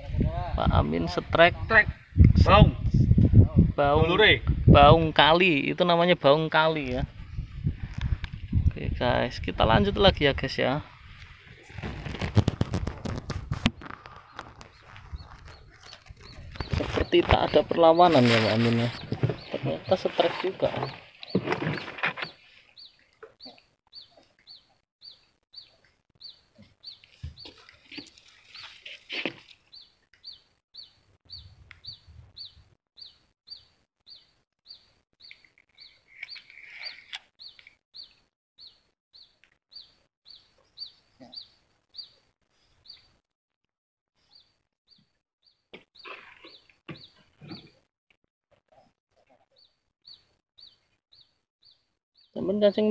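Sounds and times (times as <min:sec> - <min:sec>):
bird chirping: 0:13.7 - 0:43.2, 0:44.2 - 0:47.8, 0:48.7 - 0:52.9.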